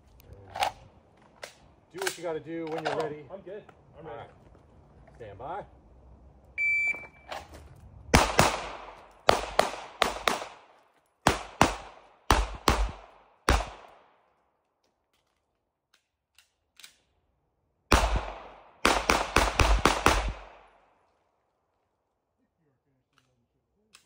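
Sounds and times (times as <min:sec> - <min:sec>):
suppressed gunshots: 0:08.1 - 0:14.0, 0:17.9 - 0:20.8.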